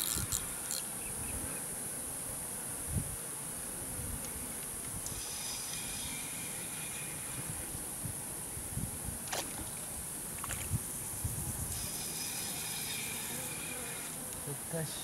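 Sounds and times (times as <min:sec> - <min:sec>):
insect chirring: 0:00.0 - 0:01.7, 0:04.2 - 0:08.8, 0:09.6 - 0:15.0
wind buffeting microphone: 0:07.2 - 0:11.8.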